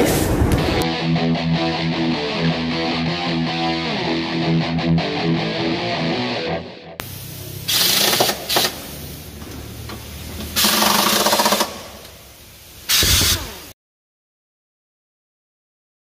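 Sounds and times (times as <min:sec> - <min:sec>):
workshop noise: 0:00.0 - 0:00.9, 0:07.0 - 0:13.7
pneumatic impact wrench rattling: 0:07.6 - 0:09.0, 0:10.4 - 0:12.2, 0:12.9 - 0:13.6.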